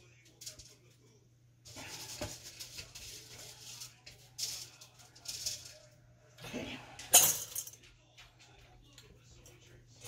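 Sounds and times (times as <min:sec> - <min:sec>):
lentils rattling into jars: 0:01.7 - 0:05.9.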